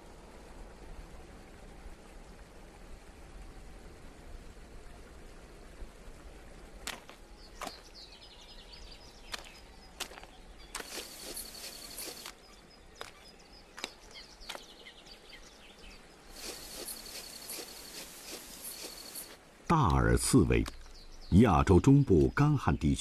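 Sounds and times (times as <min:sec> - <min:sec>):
animal moving over dry twigs: 0:06.9 - 0:08.0, 0:09.2 - 0:12.4, 0:16.3 - 0:19.4
high insect buzz: 0:09.3 - 0:12.4, 0:16.3 - 0:19.4.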